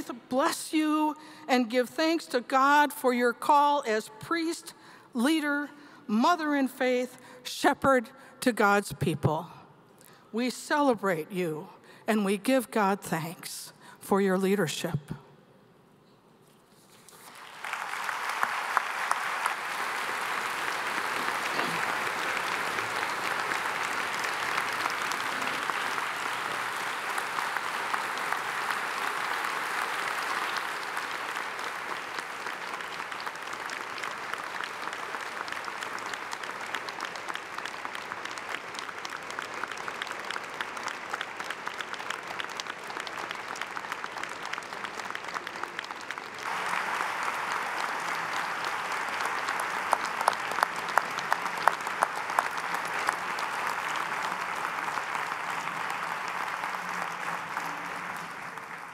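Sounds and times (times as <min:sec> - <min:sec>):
audience applauding: 0:17.1 - 0:58.9.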